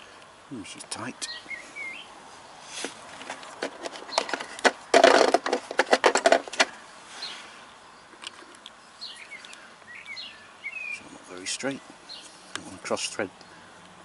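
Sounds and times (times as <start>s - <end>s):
small metal clicks and rattles: 3.2s - 6.8s.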